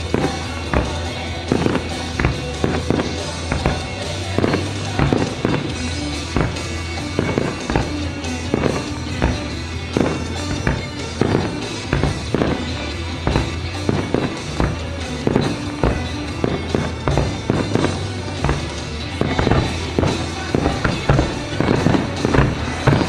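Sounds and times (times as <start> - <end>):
fireworks shells bursting: 0.0 - 23.0
music playing: 0.0 - 23.0.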